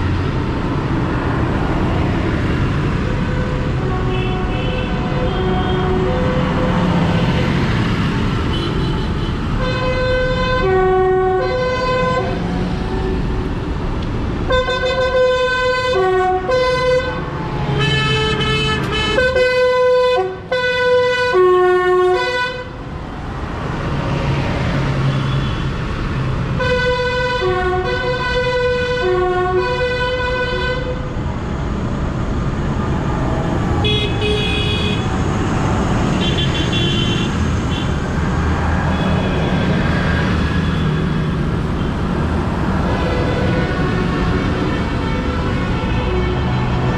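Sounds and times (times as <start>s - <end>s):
tractor horns tooting: 14.5s - 17.2s, 17.8s - 22.7s, 26.6s - 31.0s, 33.8s - 35.1s.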